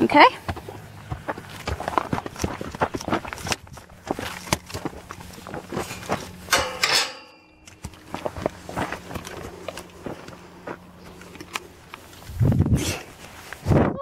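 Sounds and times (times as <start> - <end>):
metal gate clanking and rattling: 5.7 - 7.8.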